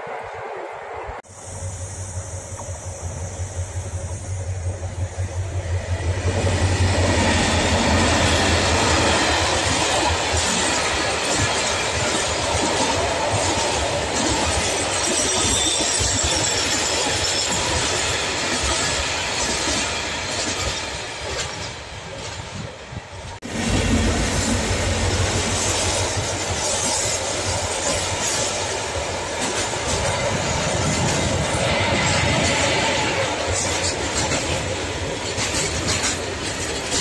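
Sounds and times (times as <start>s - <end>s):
freight train rumbling past: 0.0s - 37.0s
wheels clattering on rails: 2.5s - 37.0s.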